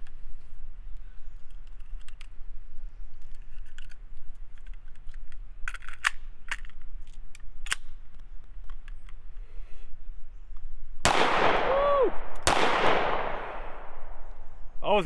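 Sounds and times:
pistol handling clacks: 0:03.2 - 0:09.2
rounds clicking into magazine: 0:03.2 - 0:09.2.

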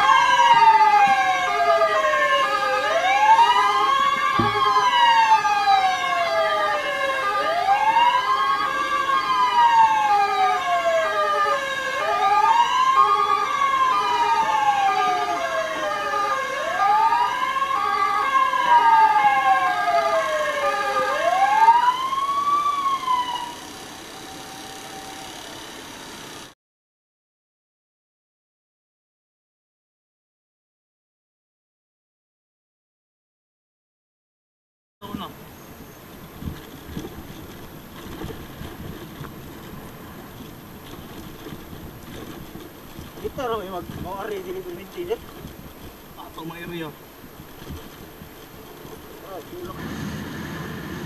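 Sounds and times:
fire engine siren wailing: 0:00.0 - 0:26.5, 0:49.2 - 0:51.0
pulsing siren tone: 0:00.0 - 0:26.5.

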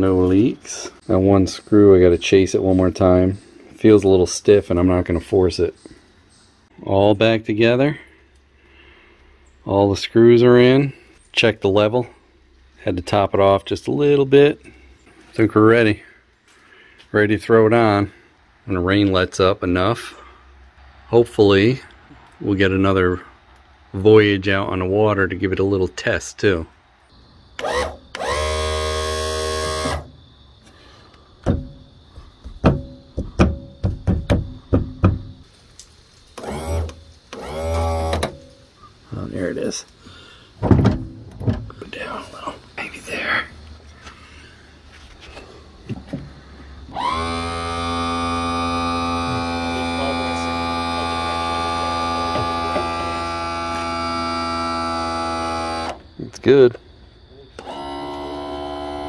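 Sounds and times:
electric pump motor whirring: 0:27.6 - 0:30.1, 0:36.4 - 0:38.3, 0:46.9 - 0:56.0, 0:57.6 - 0:59.0
sharp clicks and knocks: 0:40.6 - 0:41.8.

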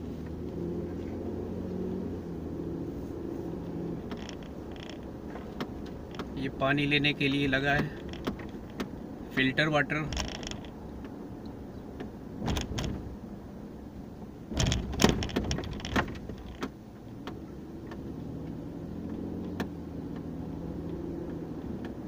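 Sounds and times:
car road and engine noise: 0:00.0 - 0:22.0
knocks and rattles: 0:04.0 - 0:06.4, 0:07.7 - 0:09.0, 0:10.1 - 0:10.8, 0:12.4 - 0:13.1, 0:14.5 - 0:17.4.

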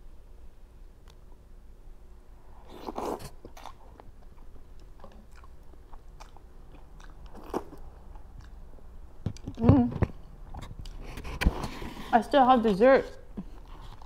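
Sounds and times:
wet chewing: 0:02.7 - 0:08.6.

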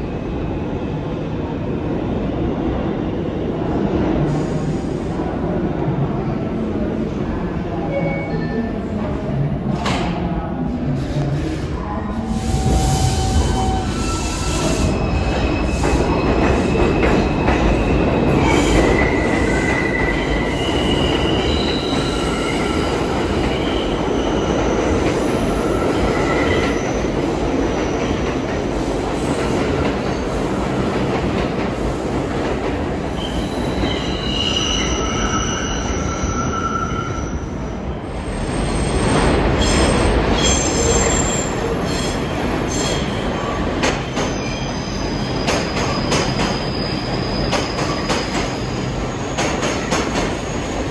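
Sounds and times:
subway train rumble: 0:00.0 - 0:50.9
wheels squealing on rails: 0:12.3 - 0:27.2, 0:33.2 - 0:50.9.

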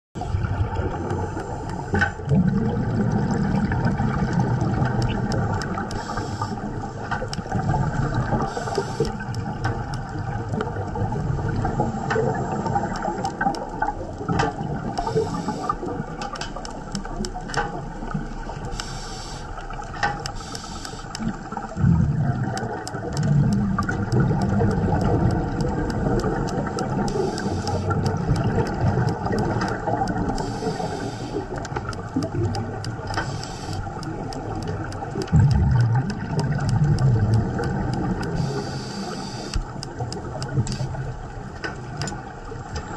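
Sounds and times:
underwater water noise gurgling: 0:00.2 - 0:42.9
short sharp clicks: 0:22.5 - 0:41.0.

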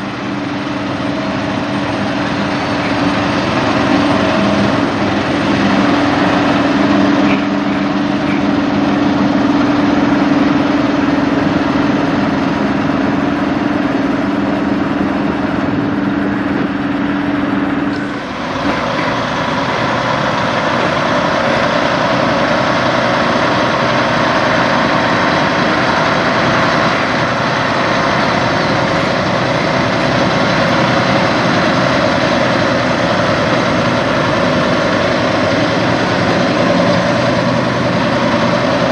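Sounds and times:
low engine hum: 0:00.0 - 0:38.9
truck diesel engine running: 0:00.0 - 0:38.9.

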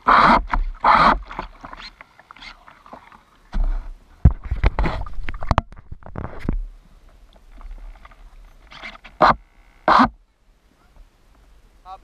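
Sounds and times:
knocks and thumps on hull: 0:02.9 - 0:06.7.

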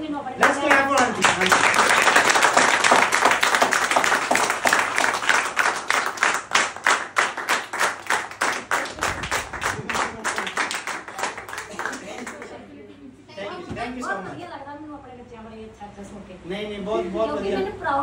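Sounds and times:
group clapping hands: 0:00.4 - 0:12.7.

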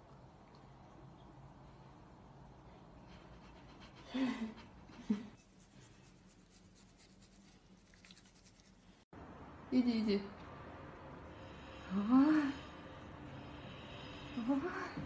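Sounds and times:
toothbrush scrubbing teeth: 0:05.4 - 0:08.9.

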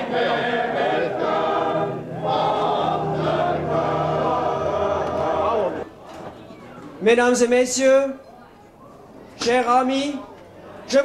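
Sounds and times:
men's choir singing in harmony: 0:00.0 - 0:05.9.

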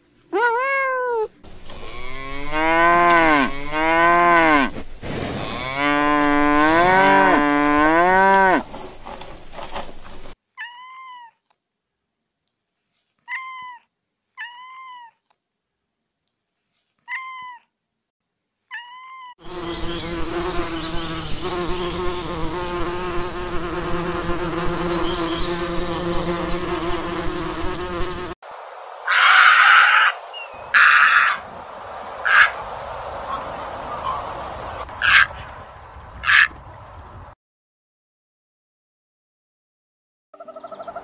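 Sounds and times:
cat mewing: 0:00.3 - 0:01.4, 0:13.3 - 0:15.2, 0:17.1 - 0:17.7
flying insects buzzing: 0:01.4 - 0:10.4, 0:19.4 - 0:34.8
steady hiss: 0:27.6 - 0:34.9.

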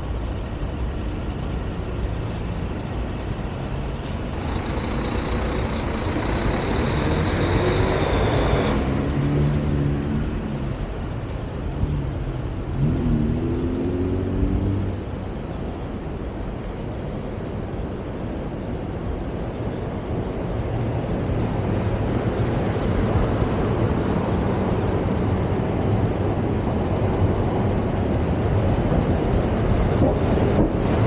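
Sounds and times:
road vehicle noise: 0:00.0 - 0:31.0
engine rising in pitch: 0:04.4 - 0:10.8.

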